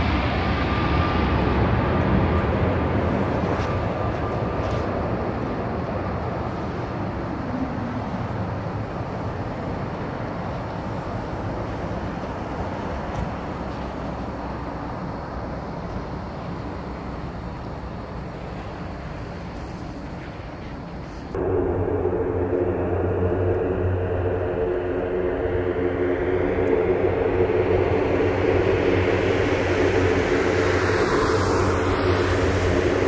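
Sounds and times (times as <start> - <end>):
turboprop aircraft drone: 0.0 - 33.0
loud steady hum: 21.3 - 33.0.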